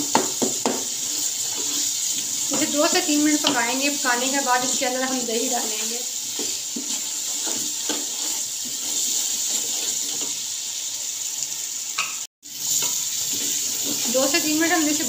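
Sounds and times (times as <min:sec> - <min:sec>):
masala sizzling in hot oil: 0:00.0 - 0:15.0
spatula scraping a pot: 0:00.9 - 0:10.4, 0:12.7 - 0:14.4.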